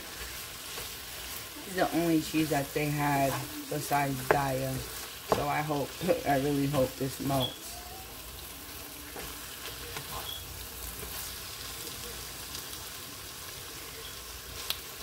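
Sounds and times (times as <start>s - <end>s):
meat and onions sizzling in a pan: 0.0s - 15.0s
spatula clicking and scraping: 0.1s - 1.5s.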